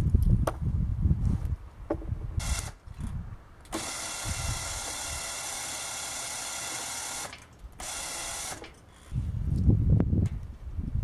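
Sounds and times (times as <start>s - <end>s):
electric winch motor whining: 2.4s - 2.8s, 3.7s - 9.2s.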